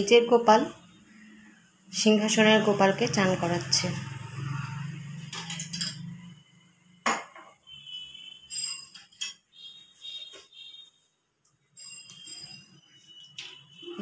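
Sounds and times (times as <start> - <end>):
metal vessels clinking: 5.2 - 6.4, 8.5 - 9.6
short ringing tones: 7.7 - 11.0, 11.8 - 14.0.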